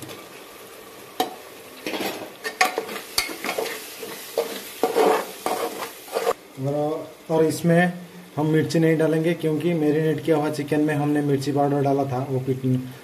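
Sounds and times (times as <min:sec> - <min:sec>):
tomatoes sizzling in hot oil: 0:00.0 - 0:13.0
spatula scraping a pot: 0:02.7 - 0:06.4.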